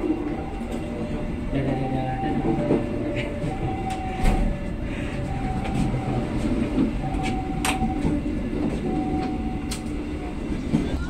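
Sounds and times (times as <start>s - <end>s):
train rumbling: 0.0s - 11.0s.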